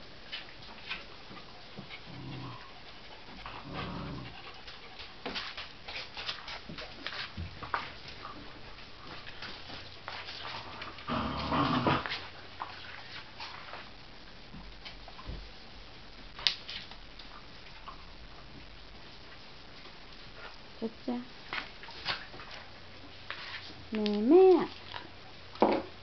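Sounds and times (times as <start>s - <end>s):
dogs growling: 1.8s - 4.7s, 10.6s - 12.3s.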